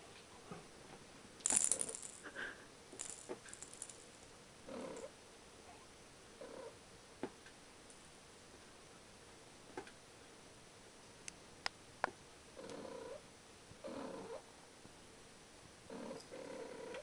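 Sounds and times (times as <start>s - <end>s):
rattling and clicking: 1.4s - 2.4s, 3.0s - 4.3s.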